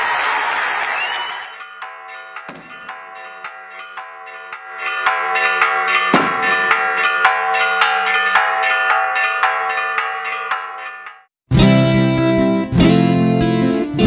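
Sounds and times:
church bells pealing: 0:01.6 - 0:11.3
deep bell strike: 0:01.7 - 0:11.3.

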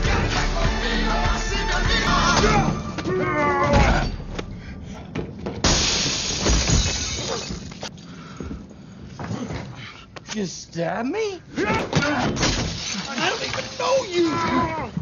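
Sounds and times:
music with singing voice: 0:00.0 - 0:03.0
glass shattering: 0:05.6 - 0:07.9, 0:12.3 - 0:14.3.

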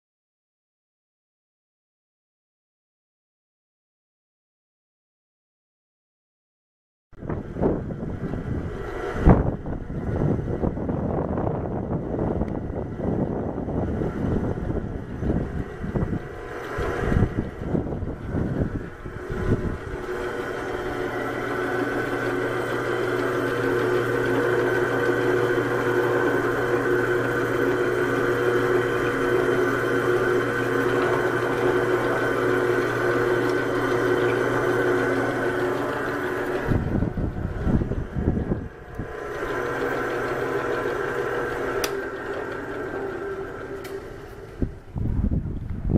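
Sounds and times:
drill press humming and whining: 0:07.2 - 0:45.0.

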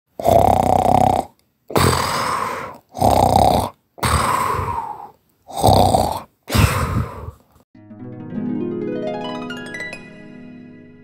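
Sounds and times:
loud snoring: 0:00.2 - 0:07.4.

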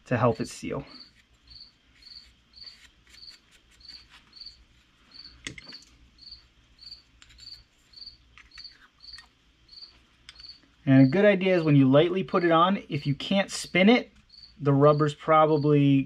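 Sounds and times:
cricket chirping: 0:00.9 - 0:11.4, 0:13.6 - 0:15.9.

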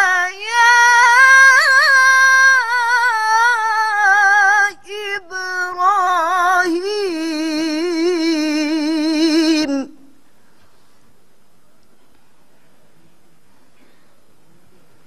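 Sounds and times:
woman chanting melodically: 0:00.0 - 0:10.2.

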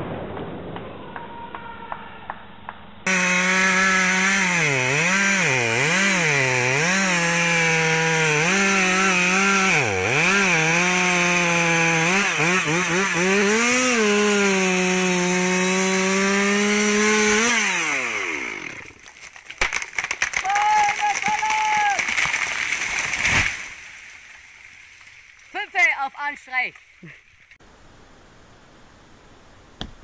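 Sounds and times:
chainsaw cutting wood: 0:03.1 - 0:23.7.

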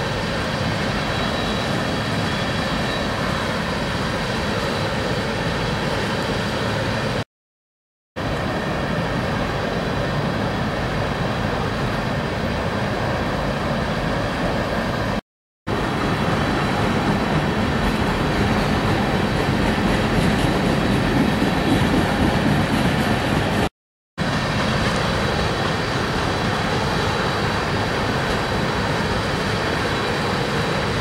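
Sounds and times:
freight train wheels on rails: 0:08.2 - 0:31.0.

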